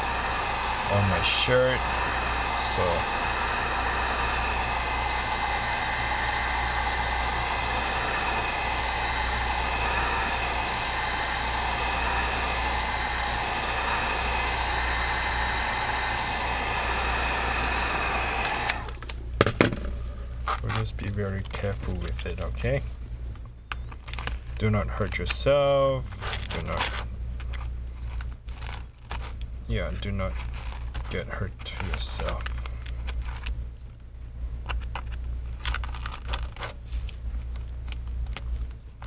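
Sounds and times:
heat gun blowing: 0:00.0 - 0:19.1, 0:26.0 - 0:27.1, 0:28.0 - 0:33.5.

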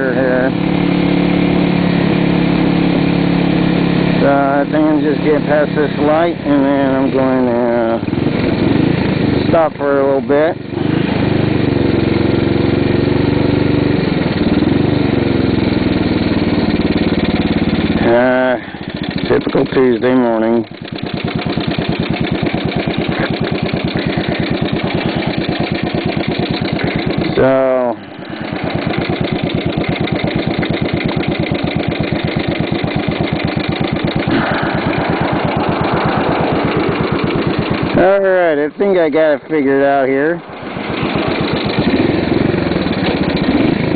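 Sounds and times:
motorcycle engine running: 0:00.0 - 0:43.9
rushing noise: 0:34.2 - 0:38.7, 0:40.3 - 0:43.9.

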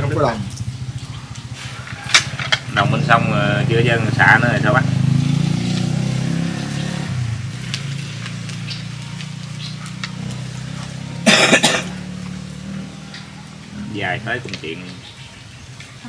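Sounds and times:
person coughing: 0:11.2 - 0:12.0.

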